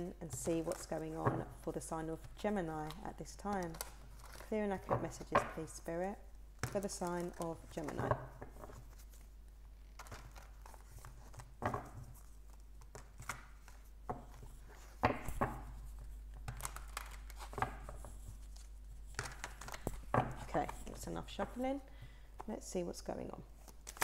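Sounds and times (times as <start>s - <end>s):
cards shuffling: 6.6s - 21.5s.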